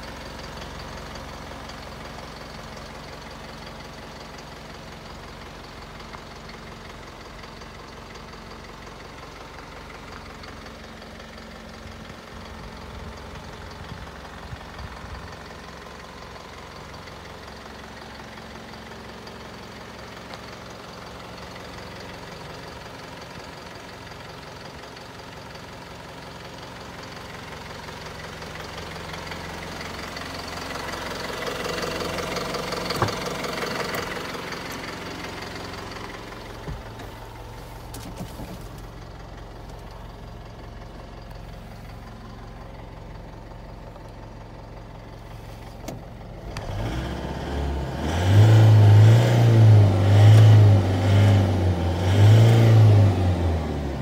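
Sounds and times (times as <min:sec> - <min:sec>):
truck engine idling: 0:00.0 - 0:54.0
truck engine revving: 0:46.4 - 0:54.0.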